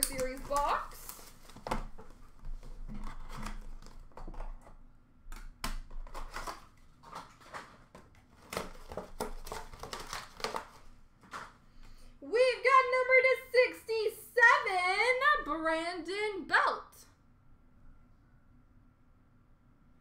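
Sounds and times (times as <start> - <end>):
cardboard and plastic rustling: 0.0 - 4.8, 5.8 - 11.7.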